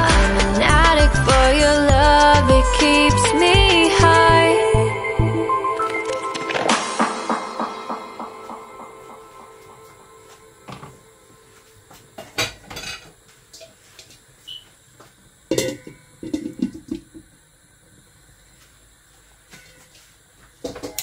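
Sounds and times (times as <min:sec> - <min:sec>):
utensils clinking on pots and pans: 0:12.2 - 0:13.8, 0:15.5 - 0:17.0, 0:19.5 - 0:20.0, 0:20.7 - 0:21.0.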